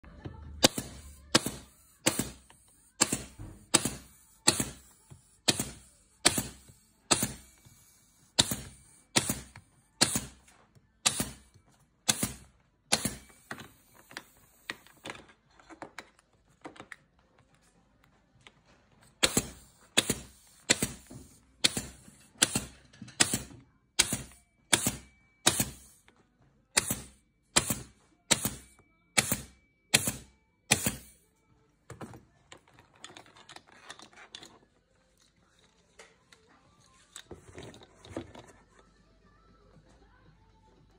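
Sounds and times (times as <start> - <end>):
nail gun firing: 0.6 - 7.5, 8.4 - 10.4, 11.0 - 11.4, 12.1 - 13.4, 19.2 - 26.0, 26.8 - 31.1.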